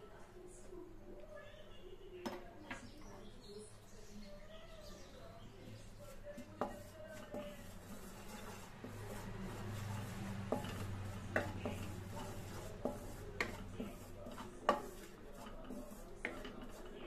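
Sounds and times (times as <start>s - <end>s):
spatula scraping a pan: 5.7s - 17.0s.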